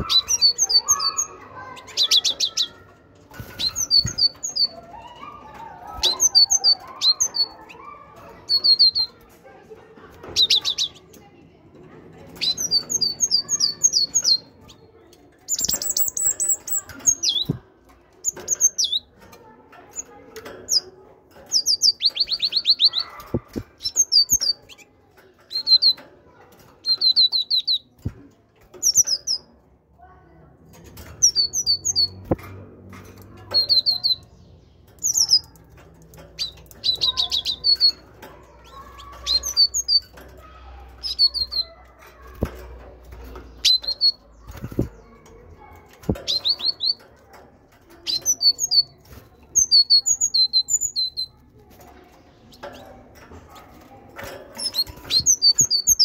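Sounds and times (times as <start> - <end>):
knocks in a wire cage: 30.7 - 34.3, 34.9 - 49.3.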